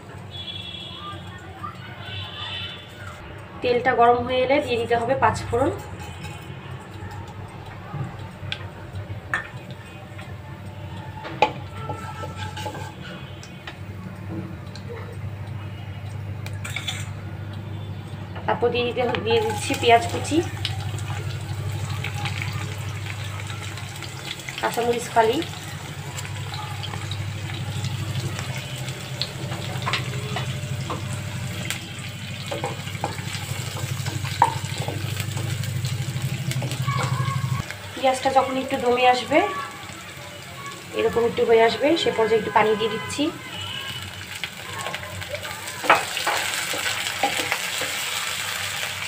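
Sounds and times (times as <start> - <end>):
seeds frying in hot oil: 0.0 - 49.0
spatula stirring and clicking on pan: 11.2 - 13.8, 24.0 - 37.7, 45.8 - 48.1
wooden spatula scraping: 11.9 - 13.0.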